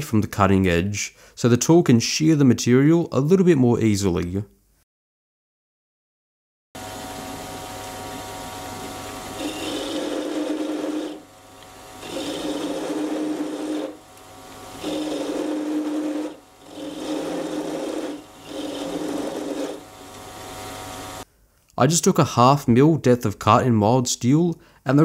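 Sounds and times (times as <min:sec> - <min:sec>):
lathe motor and gears running: 0:06.8 - 0:21.2
lathe cutting steel: 0:08.2 - 0:21.2.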